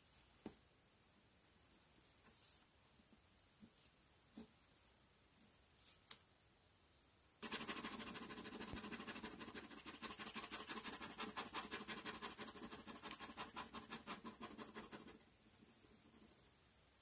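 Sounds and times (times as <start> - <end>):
marker scratching on paper: 7.4 - 16.2.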